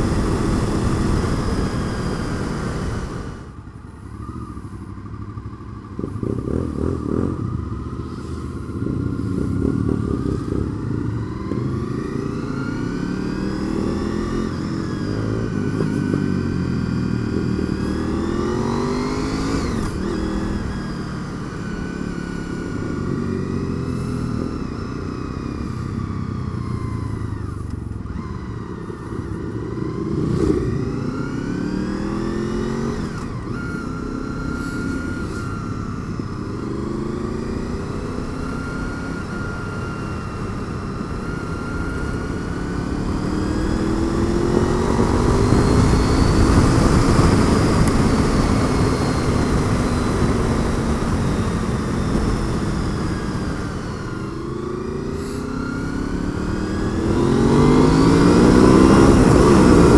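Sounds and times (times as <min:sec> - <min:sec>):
wind rushing over microphone: 0:00.0 - 0:03.5, 0:35.1 - 0:59.9
motorcycle engine revving: 0:00.0 - 0:59.9.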